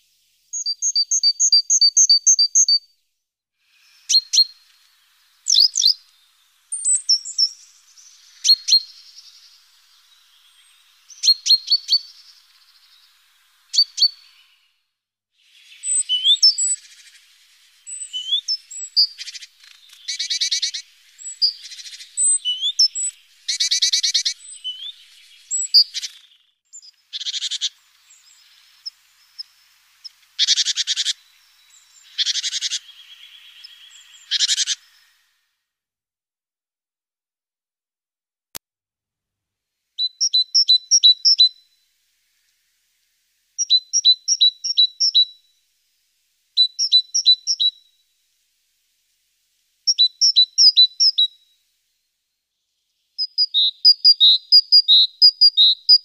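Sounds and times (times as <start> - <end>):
small birds chirping: 0.0 - 2.9, 3.6 - 35.5, 40.0 - 45.5, 46.4 - 48.0, 49.8 - 51.6, 52.5 - 56.0
bird whistled notes: 0.5 - 2.8, 3.8 - 4.6, 5.4 - 6.1, 6.7 - 14.7, 15.6 - 17.2, 17.8 - 28.5, 30.4 - 35.2, 40.0 - 41.7, 46.6 - 47.8, 53.2 - 56.0.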